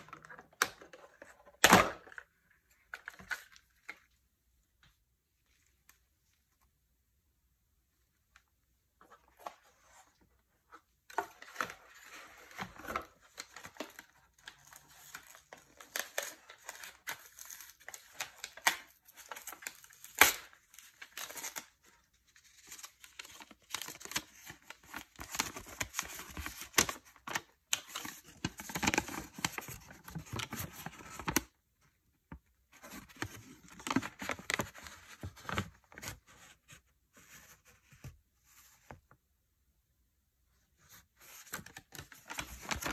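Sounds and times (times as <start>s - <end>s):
paper and cardboard crinkling: 32.7s - 38.7s, 41.2s - 42.9s.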